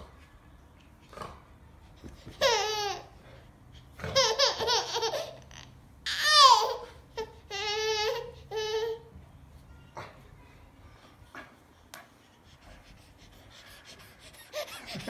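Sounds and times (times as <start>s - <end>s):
baby laughing: 4.1s - 9.0s, 13.8s - 15.0s.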